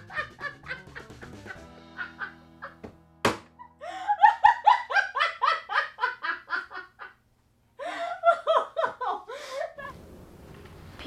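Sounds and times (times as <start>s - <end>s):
woman laughing hard: 0.0s - 2.9s, 3.6s - 7.2s, 7.8s - 9.9s.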